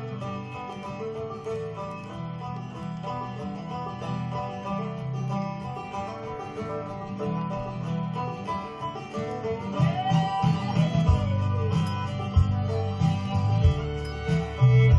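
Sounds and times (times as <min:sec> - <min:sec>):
plucked string instruments: 0:00.0 - 0:14.9.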